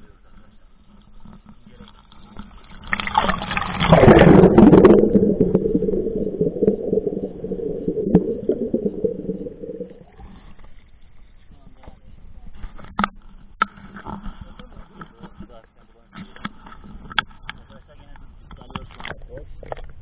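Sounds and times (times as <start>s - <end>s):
water splashing on microphone: 2.6s - 10.2s
underwater gurgling and bubbling: 2.8s - 10.2s.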